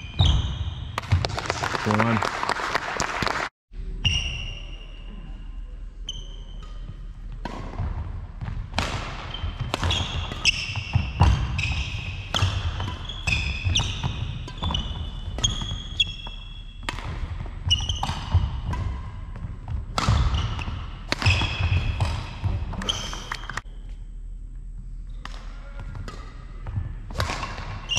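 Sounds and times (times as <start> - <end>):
trainers squeaking on court floor: 0.0 - 1.1, 4.0 - 5.4, 6.0 - 7.0, 9.0 - 23.6, 26.7 - 27.9
rackets hitting shuttlecock: 6.5 - 23.6, 25.2 - 27.9.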